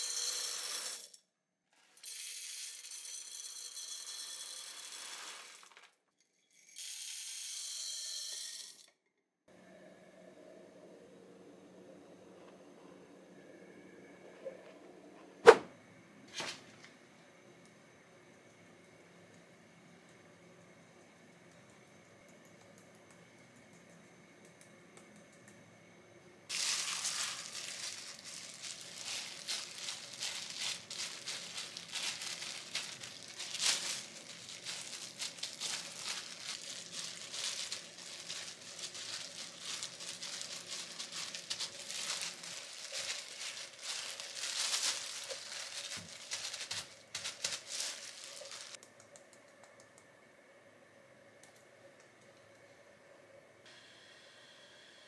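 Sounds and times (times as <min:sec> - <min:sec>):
plastic gloves crinkling: 0:26.5 - 0:48.8.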